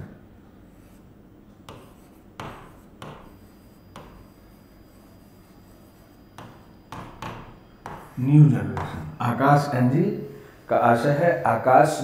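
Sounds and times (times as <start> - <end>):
marker writing on whiteboard: 0.6 - 9.2.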